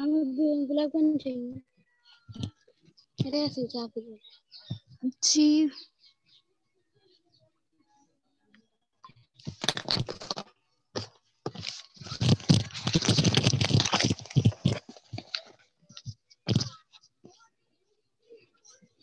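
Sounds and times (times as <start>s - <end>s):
crackling scraping rustle: 11.5s - 16.7s.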